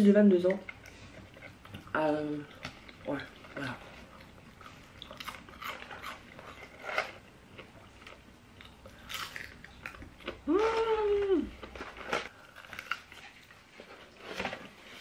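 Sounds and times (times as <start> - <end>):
chewing crunchy fries: 0.6 - 10.5, 11.6 - 13.6.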